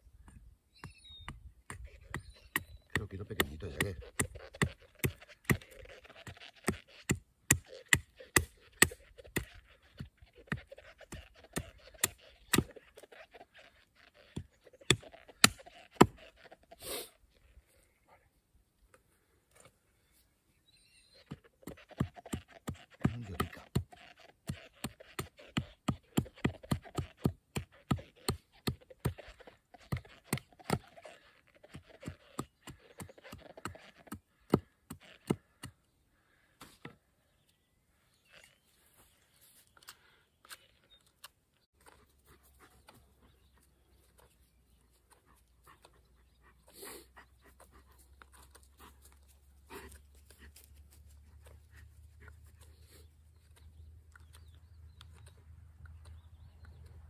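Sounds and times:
hatchet knocking wood: 0:32.4 - 0:35.8.

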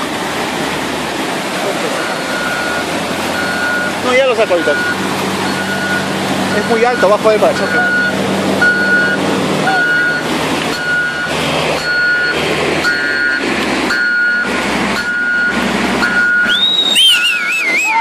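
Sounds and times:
floodwater rushing: 0:00.0 - 0:18.0
loader engine running: 0:00.0 - 0:18.0
reversing alarm beeping: 0:01.9 - 0:18.0
high whistle: 0:16.1 - 0:18.0.

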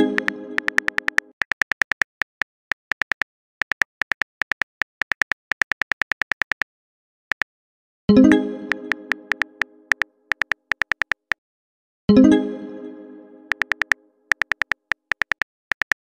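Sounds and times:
phone keyboard clicks: 0:00.2 - 0:06.7, 0:09.3 - 0:11.4, 0:13.5 - 0:16.0.

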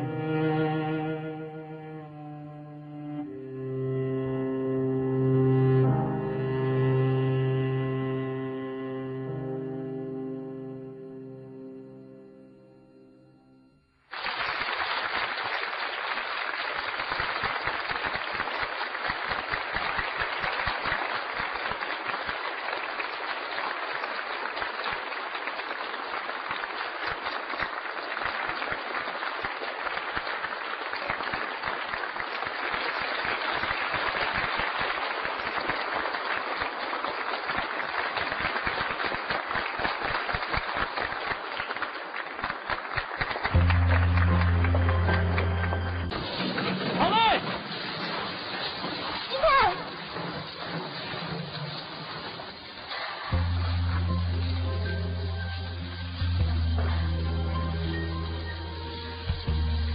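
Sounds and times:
audience applauding: 0:14.0 - 0:59.9.

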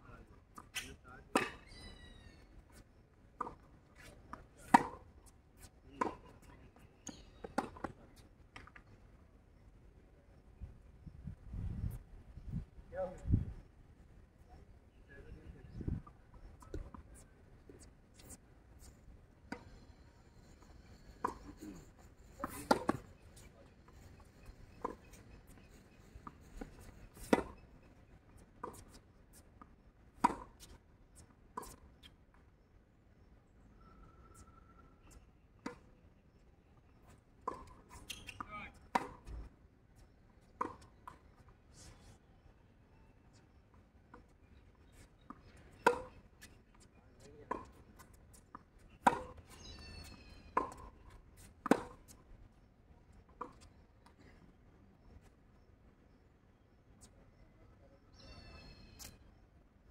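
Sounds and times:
tennis ball bouncing on court: 0:22.4 - 0:23.1, 0:37.4 - 0:39.3, 0:47.5 - 0:47.7, 0:49.0 - 0:49.4, 0:50.6 - 0:50.9, 0:51.6 - 0:52.0
tennis ball hitting racket: 0:49.0 - 0:49.4.

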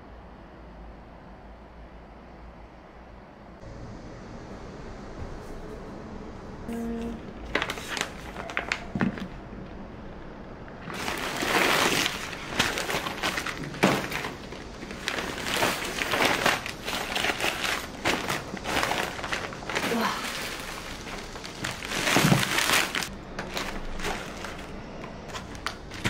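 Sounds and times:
paper bag rustling: 0:06.7 - 0:09.4, 0:10.8 - 0:26.0
plastic wrappers crackling: 0:07.4 - 0:09.4, 0:10.8 - 0:26.0
packages knocking on metal counter: 0:12.7 - 0:16.4, 0:21.6 - 0:24.3.

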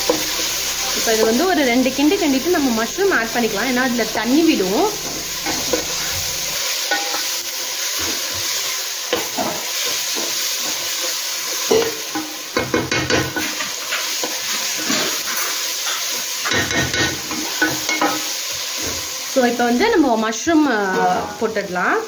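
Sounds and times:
spatula scraping pan: 0:00.0 - 0:11.1, 0:12.8 - 0:18.2
masala sizzling in pan: 0:00.0 - 0:22.0.

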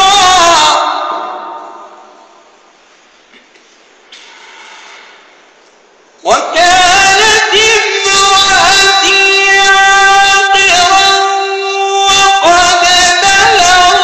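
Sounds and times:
man reciting melodically: 0:00.0 - 0:02.5, 0:06.2 - 0:14.0.

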